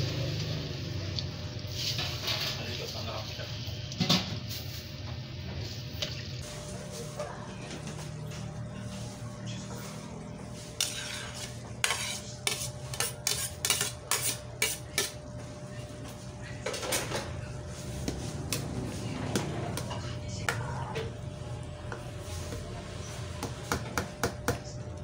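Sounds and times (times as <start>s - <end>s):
metal ladle scraping a wok: 1.7s - 2.8s, 10.4s - 15.2s.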